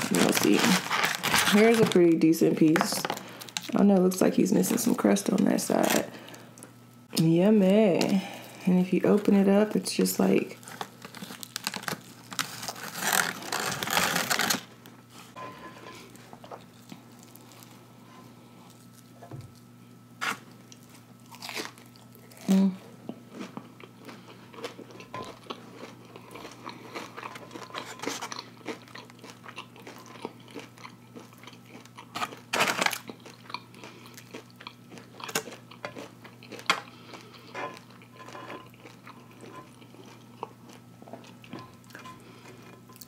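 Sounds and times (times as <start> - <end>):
crunchy bite of fried food: 20.3 - 22.6
chewing with mouth smacks: 20.7 - 43.0.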